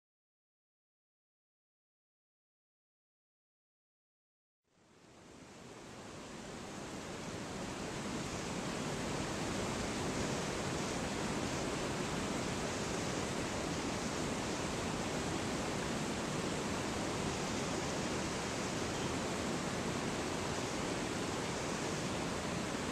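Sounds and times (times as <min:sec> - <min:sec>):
water rushing over rocks: 0:06.7 - 0:22.9.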